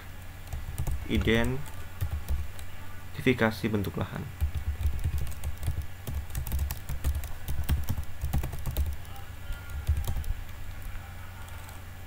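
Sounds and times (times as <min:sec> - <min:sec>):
typing on computer keyboard: 0:00.4 - 0:02.7, 0:04.4 - 0:11.8.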